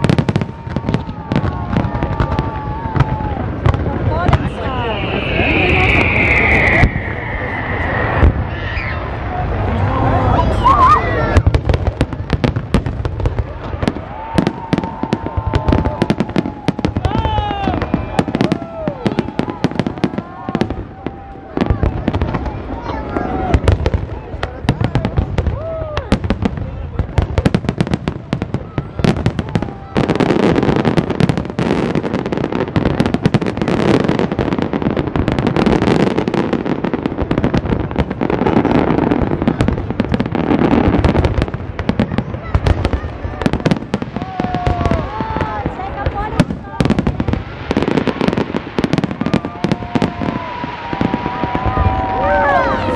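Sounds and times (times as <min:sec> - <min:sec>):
fireworks bangs and crackles: 0:00.0 - 0:52.9
steady high tone: 0:04.5 - 0:09.4.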